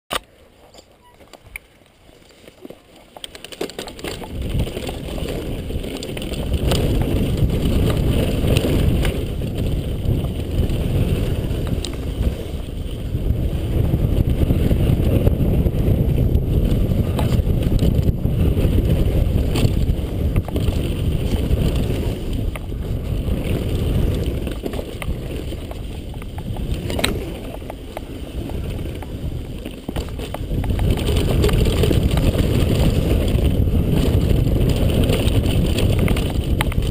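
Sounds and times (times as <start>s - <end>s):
clicks and knocks from stones: 0.1s - 12.0s, 23.4s - 36.9s
tyre rumble on loose dirt: 2.1s - 36.9s
wind buffeting on microphone: 4.0s - 36.9s.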